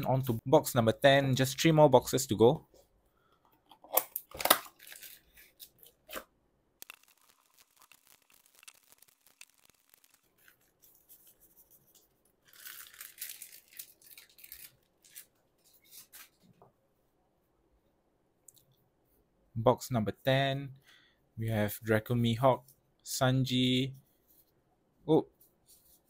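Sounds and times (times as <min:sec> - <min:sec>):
crinkling and rustling of wrappers: 0:03.8 - 0:16.6
wrappers being torn open: 0:03.9 - 0:10.8, 0:12.4 - 0:15.4.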